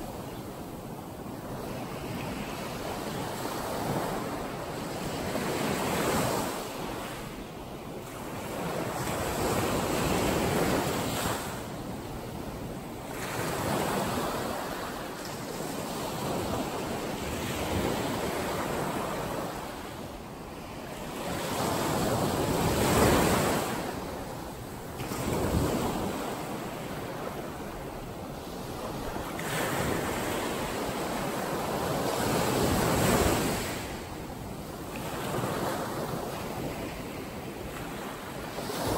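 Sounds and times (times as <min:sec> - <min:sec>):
waves breaking on a beach: 0:00.0 - 0:38.9.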